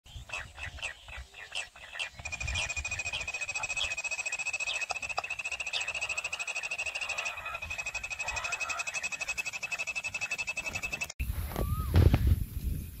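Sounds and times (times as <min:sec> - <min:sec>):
fast-pulsing high trill: 0:02.2 - 0:11.1.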